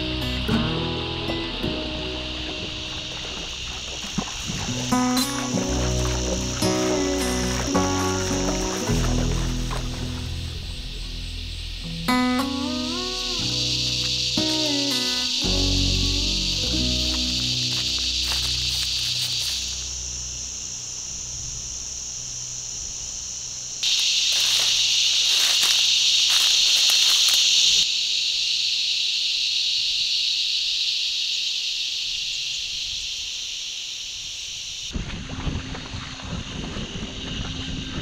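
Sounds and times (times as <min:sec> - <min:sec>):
insects chorus: 0:00.0 - 0:38.0
water sloshing around canoe: 0:01.9 - 0:11.0
wind on microphone: 0:34.9 - 0:38.0.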